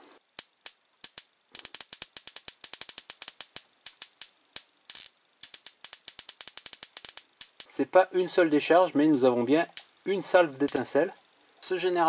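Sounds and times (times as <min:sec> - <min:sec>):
electric spark snaps: 0:00.4 - 0:07.8, 0:09.7 - 0:09.9, 0:10.6 - 0:11.0.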